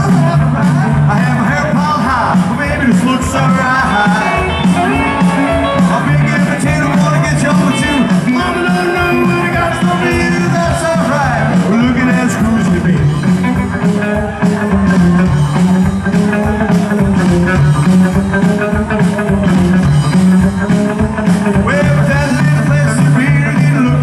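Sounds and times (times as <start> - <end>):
drums: 0.0 - 24.0
electric guitar: 0.0 - 24.0
upright bass: 0.0 - 24.0
person singing: 2.3 - 13.2, 21.5 - 24.0.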